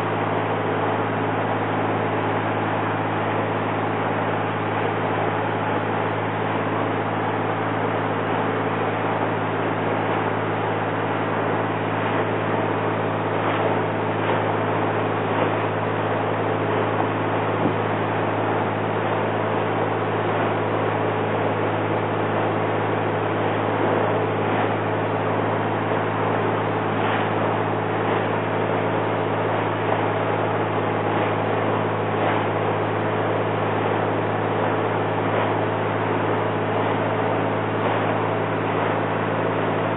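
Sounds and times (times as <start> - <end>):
boat engine droning: 0.0 - 39.9
wind and water rushing: 9.5 - 39.9.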